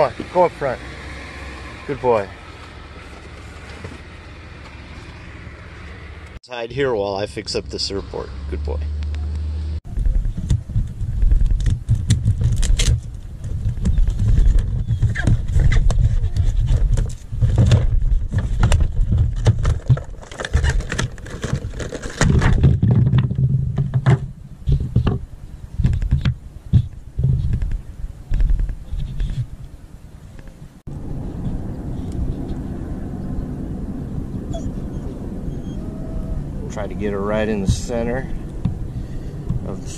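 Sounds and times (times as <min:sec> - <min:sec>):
heavy low rumble: 0:01.8 - 0:19.6, 0:26.6 - 0:39.9
cardboard and plastic crinkling: 0:11.2 - 0:23.4.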